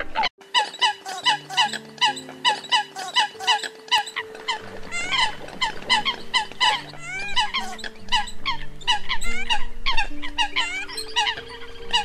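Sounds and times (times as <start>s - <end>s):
coot calling sharp notes: 0.5s - 4.3s
rising squealing bird call: 0.5s - 12.0s.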